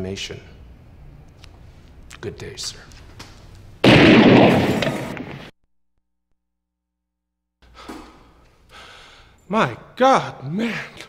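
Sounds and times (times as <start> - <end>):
loud blast: 3.8 - 5.5.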